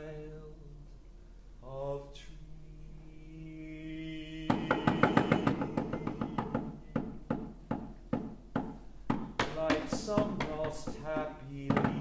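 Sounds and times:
man singing a steady note: 0:00.0 - 0:06.9, 0:09.4 - 0:12.0
knuckles knocking on piano wood: 0:04.5 - 0:12.0.

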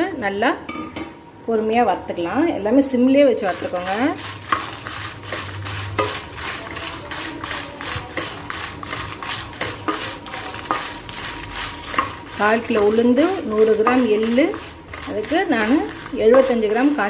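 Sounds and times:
spatula scraping metal pan: 0:03.4 - 0:17.0.

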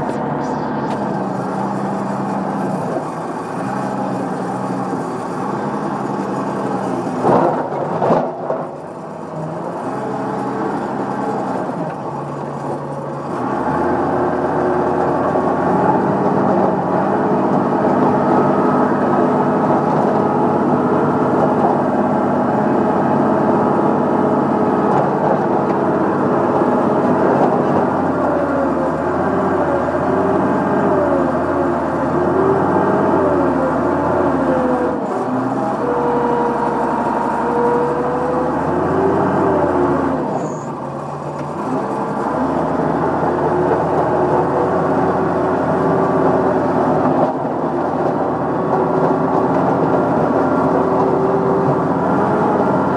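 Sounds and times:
diesel loader engine running: 0:00.0 - 0:52.9.

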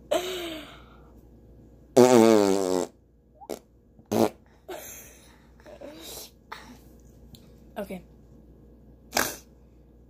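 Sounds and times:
arm fart raspberry: 0:02.0 - 0:04.5, 0:09.1 - 0:09.5.

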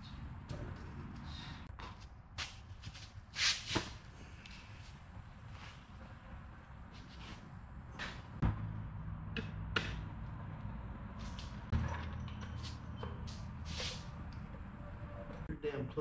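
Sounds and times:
rustling and shuffling: 0:00.8 - 0:08.4.

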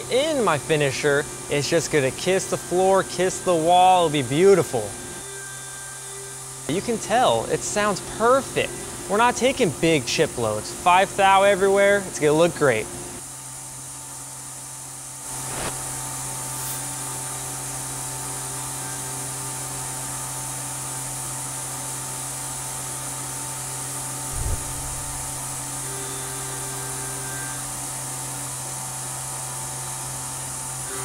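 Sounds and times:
milling machine hum and whine: 0:00.0 - 0:31.0
low thump: 0:24.3 - 0:25.7.

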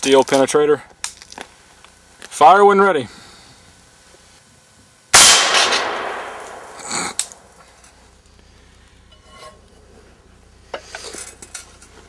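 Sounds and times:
bullet striking steel plate: 0:05.2 - 0:07.5
rifle shot: 0:05.2 - 0:07.5.

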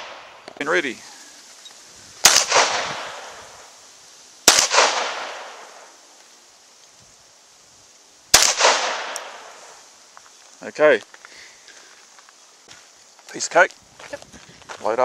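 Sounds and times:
pistol shots with echo: 0:02.2 - 0:03.4, 0:04.5 - 0:05.8, 0:08.3 - 0:09.5.

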